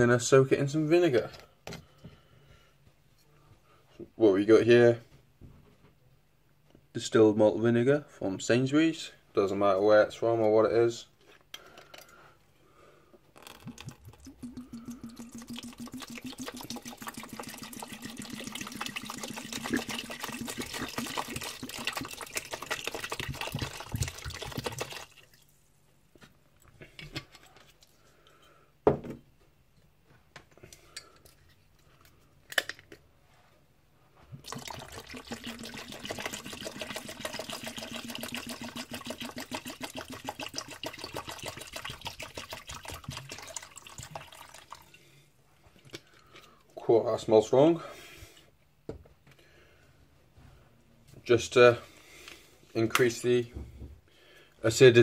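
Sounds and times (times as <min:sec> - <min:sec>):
liquid pouring into plastic tub: 0:13.3 - 0:25.6, 0:34.4 - 0:45.1.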